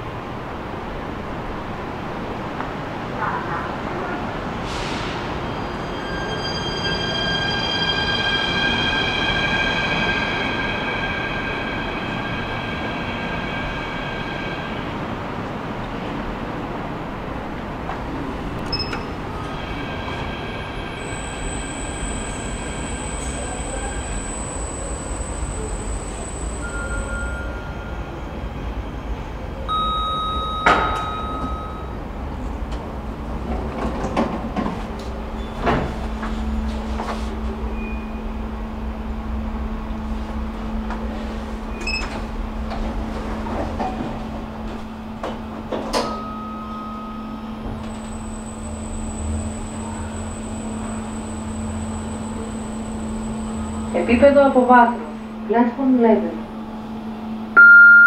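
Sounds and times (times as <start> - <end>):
elevator hum and whine: 5.5 - 58.0
elevator doors clunking: 17.5 - 21.8, 29.7 - 38.3, 40.8 - 52.5
brief elevator tone: 18.7 - 19.6, 26.0 - 28.1, 29.7 - 32.0, 37.7 - 38.3, 41.7 - 42.2, 45.9 - 53.9, 57.6 - 58.0.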